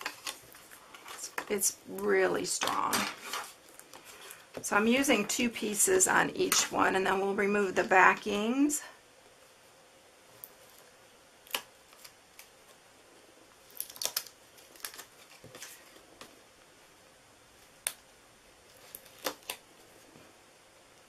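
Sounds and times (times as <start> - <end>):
light clicks and paper crackles: 13.7 - 16.4.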